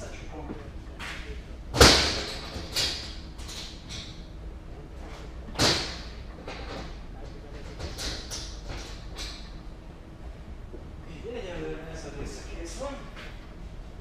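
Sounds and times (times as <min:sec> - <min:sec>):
bangs echoing in truck trailer: 0:01.7 - 0:03.0, 0:05.6 - 0:06.2.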